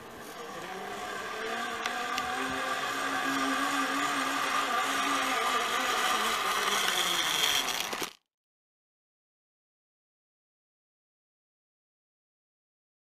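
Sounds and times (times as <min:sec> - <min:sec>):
zipline pulleys whirring: 0:00.0 - 0:08.3.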